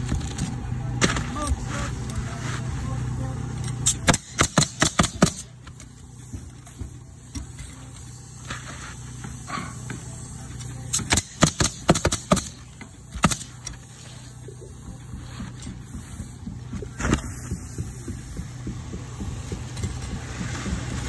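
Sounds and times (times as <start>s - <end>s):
pneumatic nailer shots: 3.7s - 14.1s.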